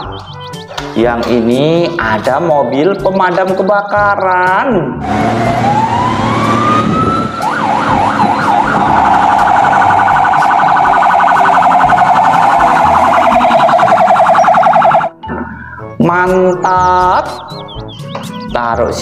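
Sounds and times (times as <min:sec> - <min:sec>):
toy fire engine siren: 0:05.0 - 0:15.2.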